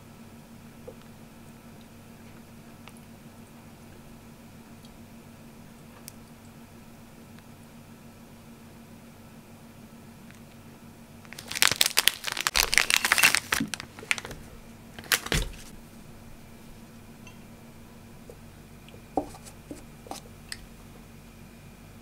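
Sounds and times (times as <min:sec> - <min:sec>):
plastic wrapper crinkling: 0:11.2 - 0:15.7
paper cup set down: 0:13.5 - 0:15.7.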